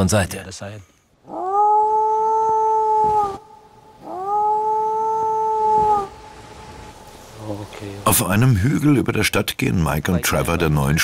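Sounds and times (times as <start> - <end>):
dog howling: 1.3 - 3.4, 4.0 - 6.2.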